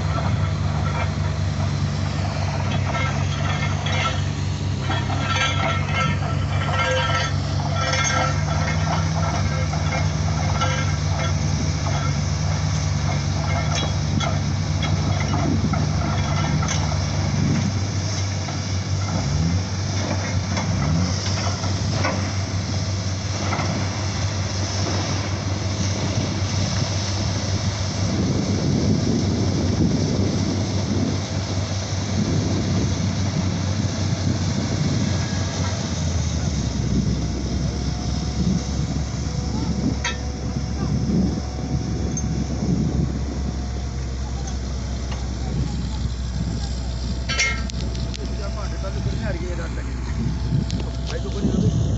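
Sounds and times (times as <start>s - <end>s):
drilling rig engine droning: 0.0s - 51.9s
metallic clinking: 2.5s - 12.2s, 47.2s - 48.1s.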